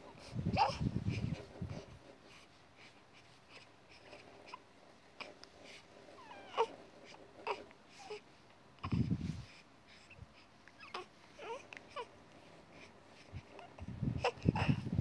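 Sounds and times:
baby fussy cry: 6.2 - 6.8, 10.8 - 12.1.

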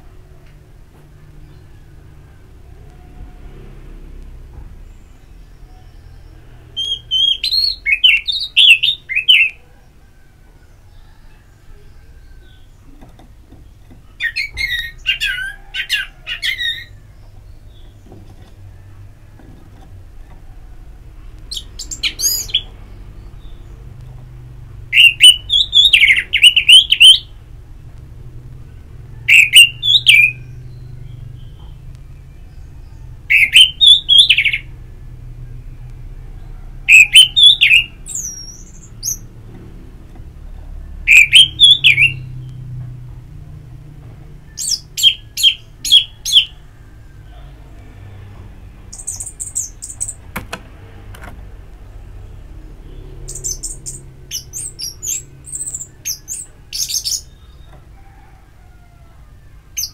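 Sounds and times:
high bird chirps: 4.8 - 9.6, 13.6 - 18.2, 21.4 - 24.0, 24.9 - 27.4, 29.2 - 34.8, 36.9 - 39.4, 40.9 - 42.6, 44.5 - 46.6, 48.9 - 50.3, 52.8 - 57.9
thrush singing whistled notes: 5.0 - 9.6, 21.5 - 23.5, 24.9 - 27.4, 29.2 - 34.8, 36.9 - 39.3, 40.9 - 42.6, 44.4 - 47.1, 52.8 - 57.8.

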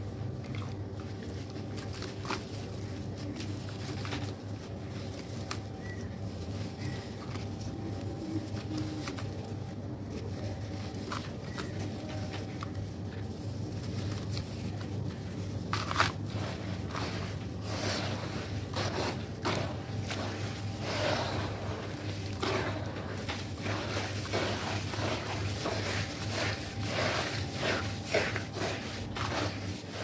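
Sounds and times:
wet sand crumbling and squishing: 15.6 - 30.0.

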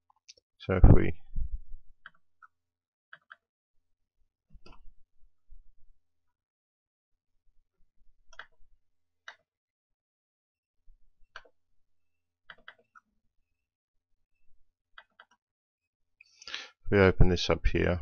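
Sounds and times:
computer mouse clicks: 3.1 - 3.5, 8.3 - 8.6, 11.3 - 11.6, 12.5 - 13.0, 15.0 - 15.4.

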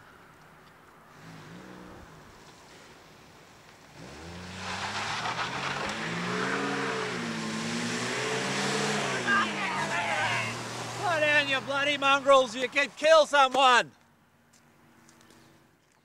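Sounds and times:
tyre and road noise: 0.0 - 16.0
car engine revving: 3.9 - 12.8.

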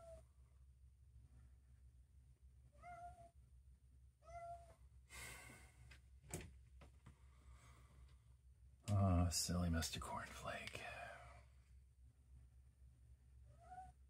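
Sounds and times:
cat meowing faintly: 2.7 - 3.4, 4.2 - 4.8, 13.5 - 14.0.

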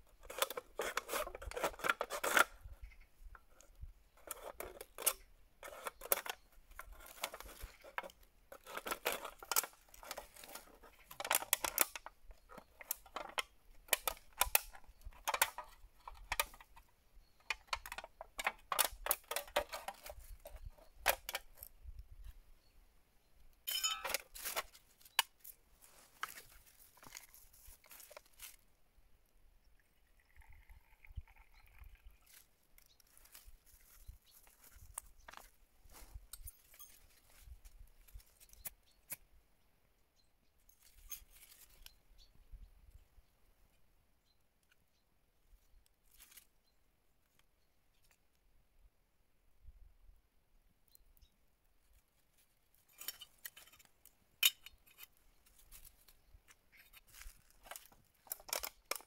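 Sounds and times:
knife cutting through drink can: 0.3 - 2.5.

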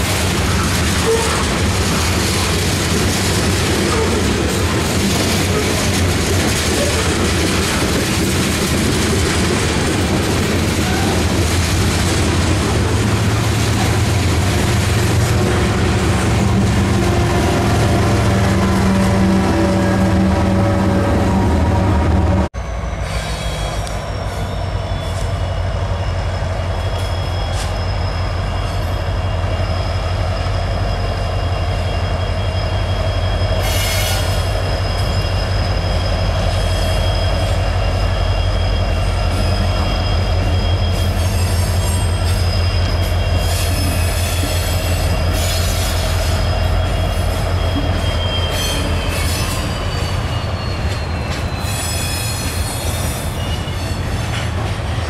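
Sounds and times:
freight cars clattering over rails: 0.0 - 15.2
diesel locomotive engine drone: 0.0 - 55.0
wheel squeal: 22.7 - 54.8.

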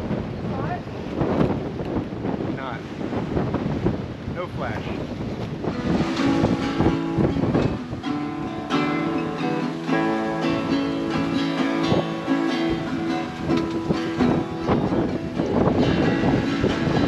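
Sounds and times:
acoustic guitar strumming: 5.6 - 17.0.

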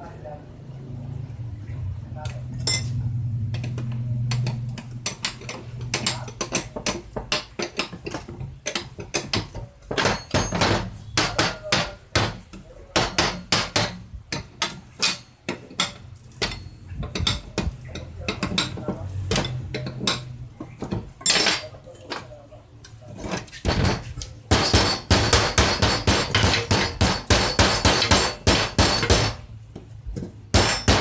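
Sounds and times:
wrench clanking on metal: 3.6 - 12.4, 13.0 - 22.3.

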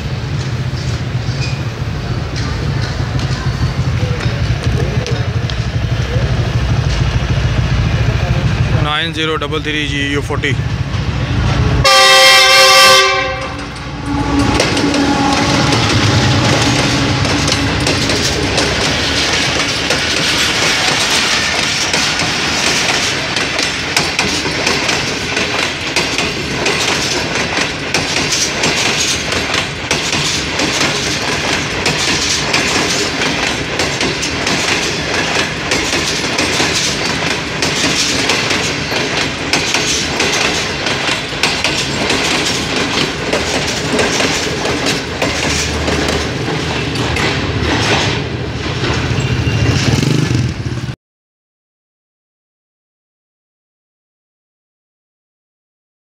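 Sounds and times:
train wheels clattering over rail joints: 0.1 - 8.8, 12.4 - 50.8.

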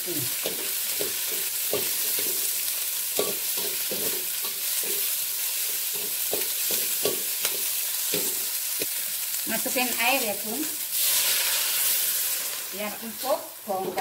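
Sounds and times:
vegetables sizzling in a wok: 0.0 - 14.0.

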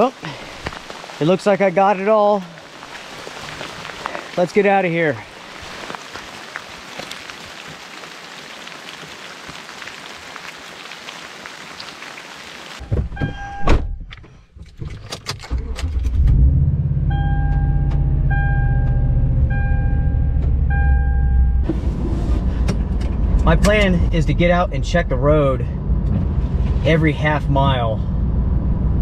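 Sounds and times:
freezing rain falling: 0.0 - 12.9
dashboard warning chime: 12.8 - 14.1, 17.1 - 21.7.

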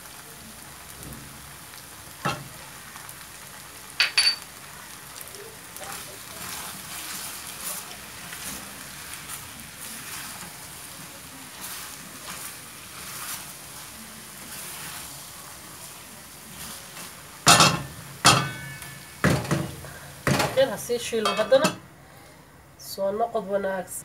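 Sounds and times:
curry sizzling in a pan: 0.0 - 23.9
metallic clanks of utensils: 4.0 - 4.5, 17.5 - 20.6, 21.2 - 21.8.

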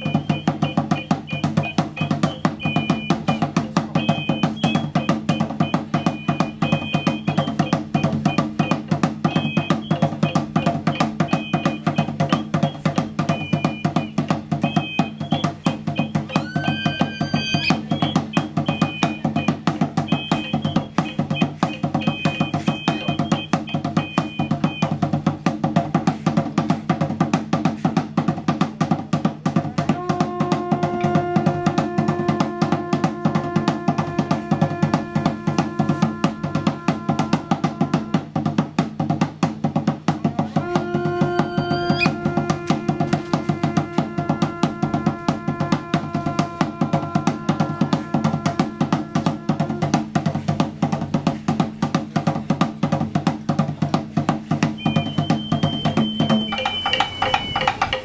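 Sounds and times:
high piping melody: 0.0 - 25.0, 40.7 - 43.3, 54.8 - 58.0
deep drum: 0.0 - 58.0
fast steady drumming: 0.0 - 58.0.

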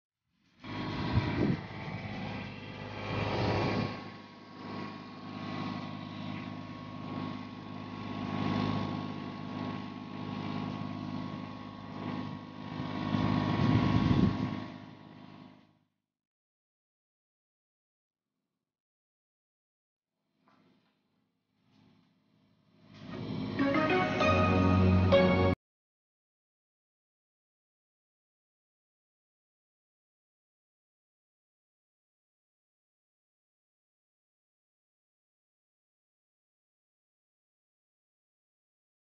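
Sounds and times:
diesel generator humming: 0.7 - 15.2, 23.0 - 25.6.

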